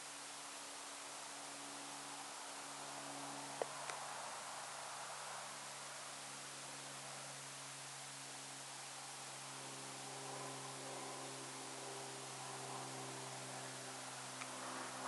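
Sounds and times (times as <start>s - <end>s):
low even hum: 0.0s - 15.0s
steady hiss: 0.0s - 15.0s.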